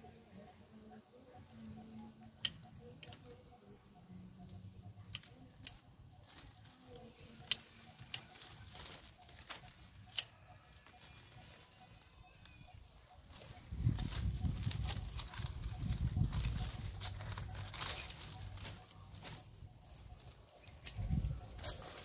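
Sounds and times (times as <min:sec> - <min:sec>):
pruning shears snipping branches: 0:07.3 - 0:08.6.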